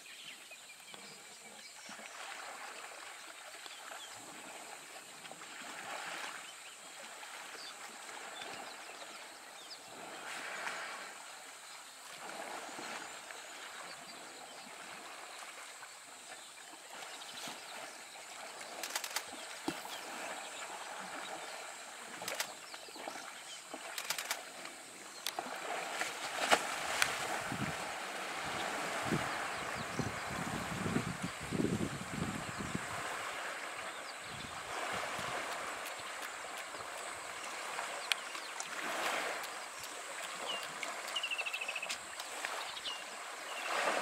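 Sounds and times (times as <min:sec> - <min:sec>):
water sloshing and splashing: 0:14.8 - 0:30.9, 0:32.9 - 0:44.0.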